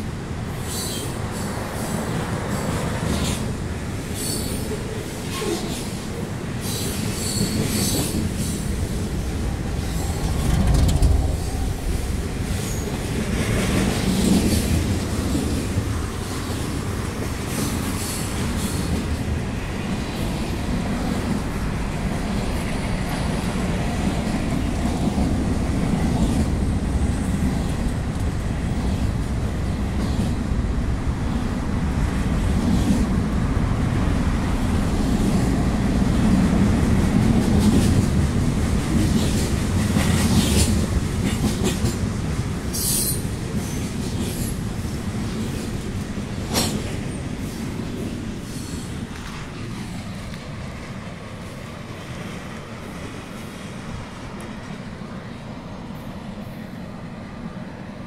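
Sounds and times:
train wheels rumbling on rail: 0.0s - 58.0s
rail joint clatter: 6.6s - 15.6s, 37.1s - 47.6s.

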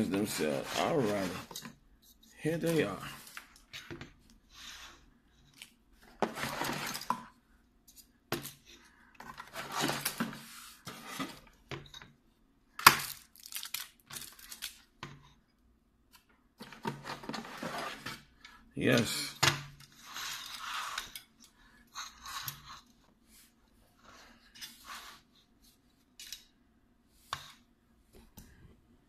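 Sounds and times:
packaging rustling and tearing: 12.9s - 14.9s.

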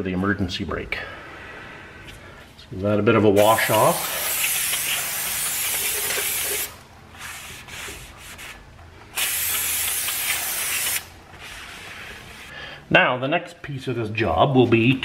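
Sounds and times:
aerosol spray hissing: 3.4s - 7.8s, 9.2s - 12.5s.

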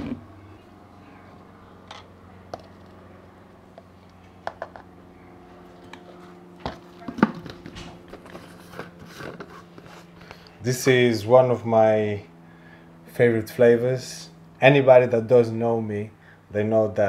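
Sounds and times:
steady low hum: 0.0s - 17.0s
clicks and knocks of handled containers: 3.7s - 4.9s.

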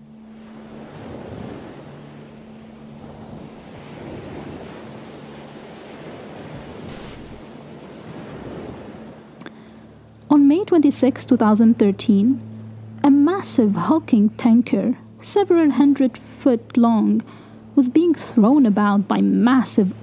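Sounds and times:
waves surging and breaking: 0.0s - 10.5s
wind: 0.0s - 20.0s.

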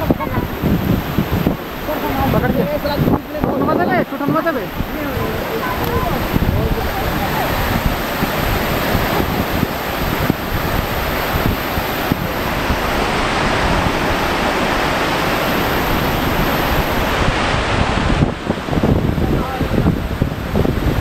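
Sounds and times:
water rushing over a weir: 0.0s - 21.0s.

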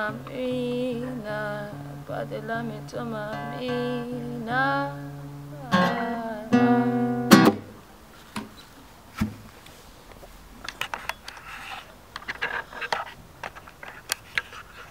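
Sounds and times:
classical guitar strummed chord: 4.8s - 7.8s
soft rustling: 8.0s - 14.9s.

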